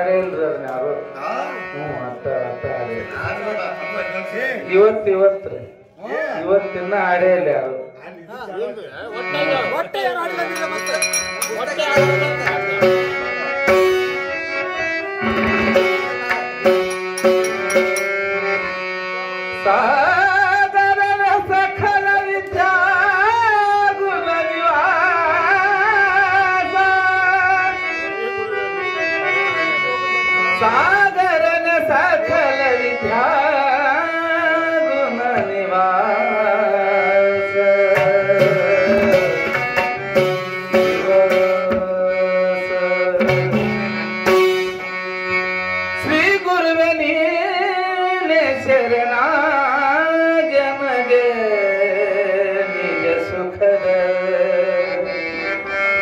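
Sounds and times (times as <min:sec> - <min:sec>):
harmonium: 0:00.0 - 0:56.0
tabla drumming: 0:10.3 - 0:14.3, 0:15.2 - 0:18.4, 0:37.5 - 0:45.0
man singing: 0:19.4 - 0:29.4, 0:30.1 - 0:44.2, 0:45.9 - 0:55.6.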